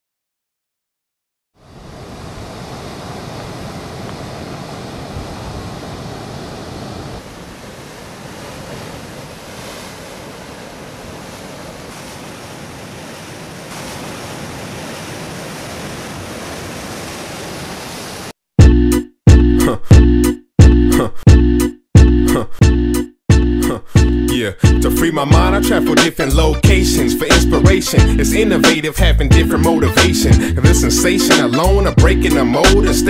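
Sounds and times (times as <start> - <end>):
surf breaking over rocks: 1.6 - 18.4.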